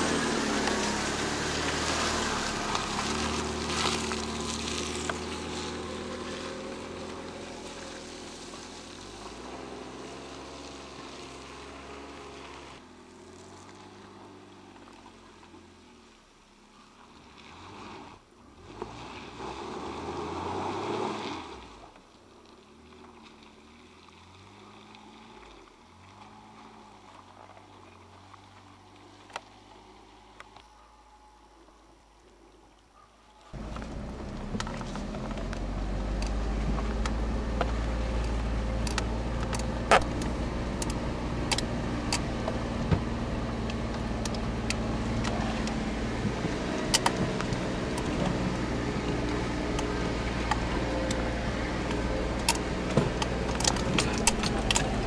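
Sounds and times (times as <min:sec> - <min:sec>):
car engine revving: 0:00.0 - 0:16.1, 0:33.6 - 0:55.0.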